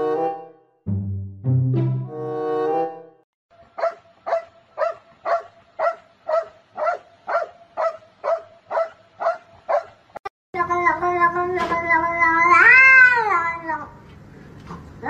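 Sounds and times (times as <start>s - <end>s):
dog barking: 3.8s - 10.0s.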